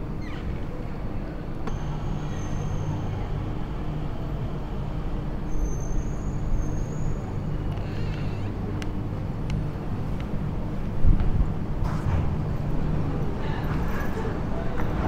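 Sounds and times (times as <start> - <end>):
single click: 1.6 - 1.9
thin high whine: 1.6 - 8.7.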